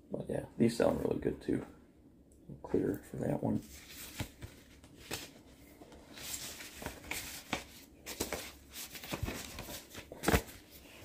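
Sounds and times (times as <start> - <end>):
record jackets rustling: 3.2 - 11.0.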